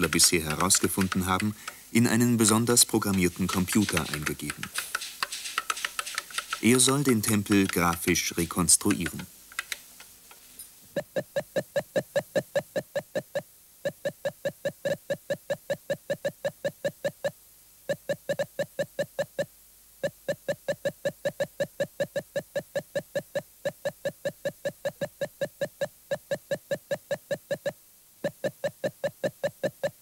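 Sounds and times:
rapid electronic beeping: 11.0 - 30.0.

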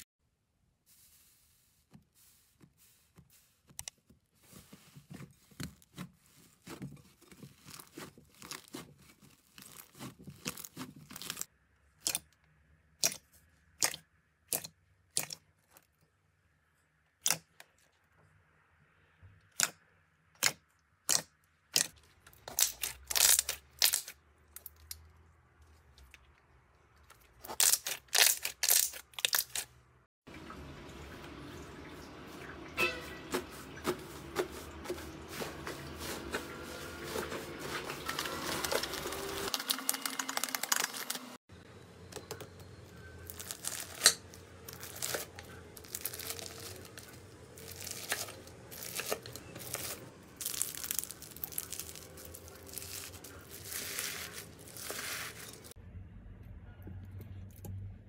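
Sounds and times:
hands squishing slime: 4.4 - 12.3.

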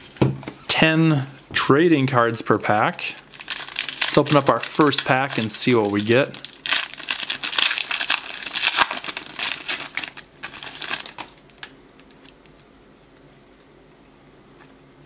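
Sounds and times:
foil wrapper crinkling and tearing: 3.0 - 12.5.

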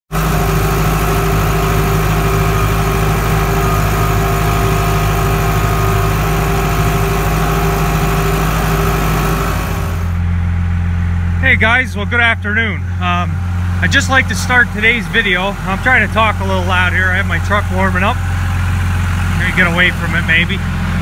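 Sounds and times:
lower engine hum: 0.1 - 21.0
tractor engine running: 0.1 - 21.0.

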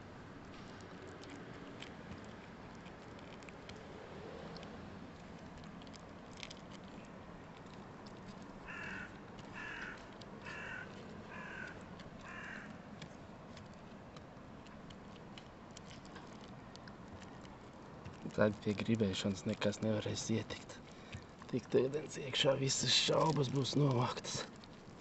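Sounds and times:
crow cawing: 8.6 - 12.7.

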